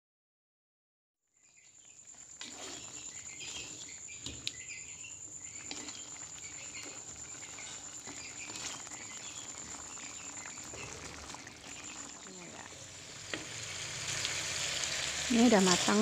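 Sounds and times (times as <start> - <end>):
sauce sizzling and bubbling in a wok: 1.3 - 16.0
metal spatula scraping a pan: 2.0 - 12.1.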